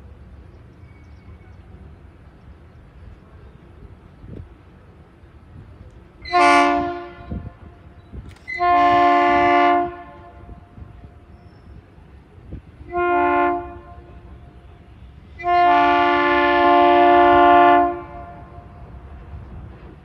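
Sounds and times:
locomotive air horn blasts: 6.2 - 7.8, 8.5 - 10.8, 12.8 - 18.7.

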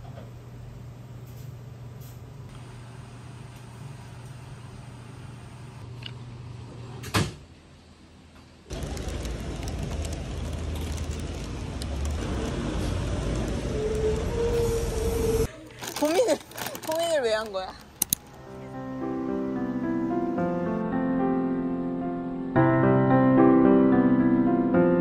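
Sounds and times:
plastic bag rustling: 8.7 - 12.2, 15.6 - 18.3
road traffic going by: 8.7 - 15.5.

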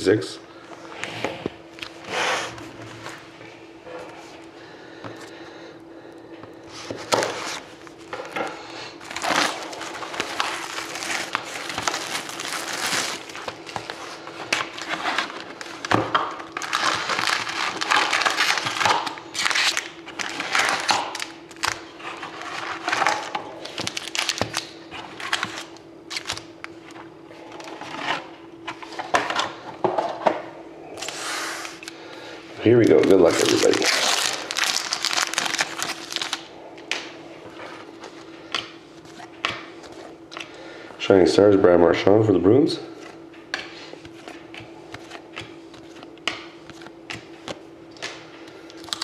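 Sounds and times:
faint steady hum: 0.0 - 49.0
cellophane crinkling: 9.0 - 26.8, 32.6 - 36.5, 48.6 - 49.0
foil packs rustling and clicking: 9.0 - 26.8, 32.6 - 36.5, 44.0 - 49.0.

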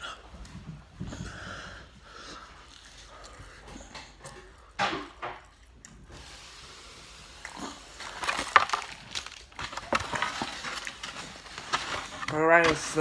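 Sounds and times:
wax paper crinkling: 7.4 - 13.0.

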